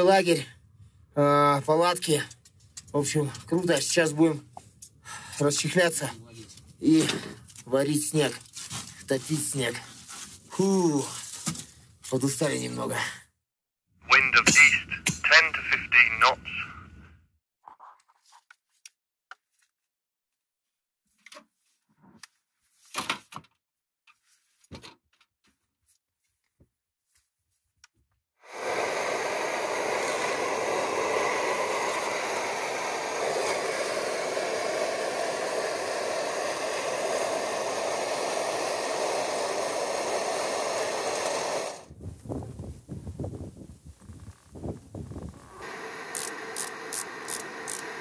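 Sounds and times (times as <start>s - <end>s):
camping stove burner rushing: 28.5s - 41.9s, 45.3s - 48.0s.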